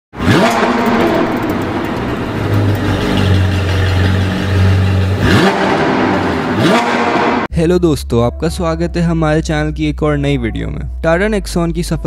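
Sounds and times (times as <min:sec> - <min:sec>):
sports car engine revving: 0:00.2 - 0:07.5.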